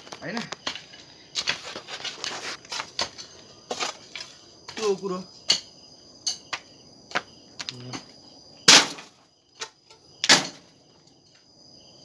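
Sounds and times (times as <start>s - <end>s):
hoes striking dry soil: 0.0s - 5.7s
crickets trilling: 0.0s - 12.0s.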